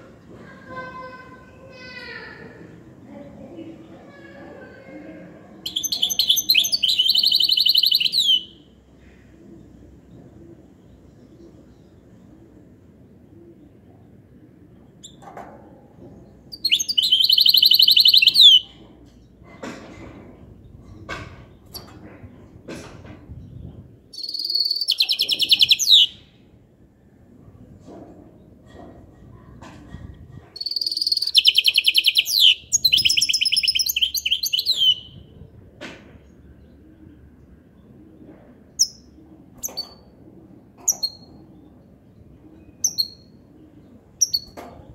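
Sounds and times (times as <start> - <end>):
bird chirping: 5.6 - 8.7, 16.5 - 18.7, 23.5 - 26.3, 30.6 - 35.2, 42.6 - 43.4, 44.2 - 44.6
finch singing trill: 5.7 - 8.6, 16.6 - 18.7, 24.2 - 26.2, 30.6 - 35.2.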